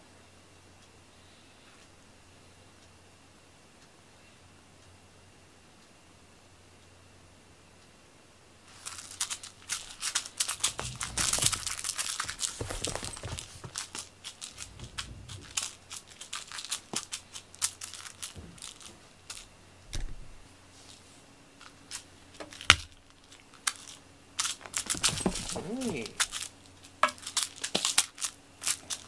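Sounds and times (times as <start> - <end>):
cat scrabbling over a rug: 10.0 - 15.7, 24.6 - 26.5.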